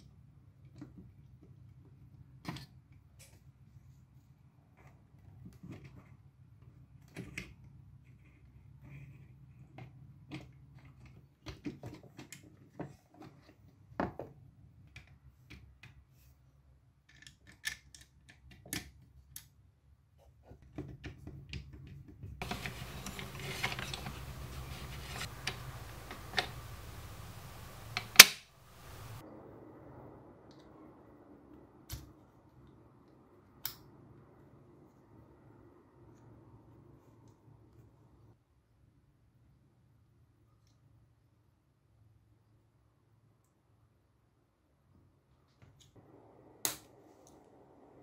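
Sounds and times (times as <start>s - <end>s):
plastic parts clicking and tapping: 20.7s - 29.2s
sharp loud click: 27.6s - 29.2s.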